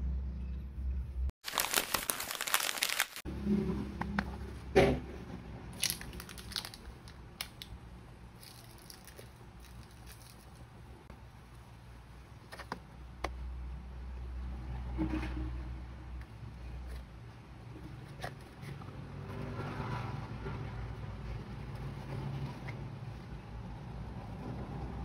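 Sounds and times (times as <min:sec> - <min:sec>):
plastic bags crinkling: 0:01.4 - 0:03.2, 0:05.8 - 0:07.7, 0:08.4 - 0:10.7.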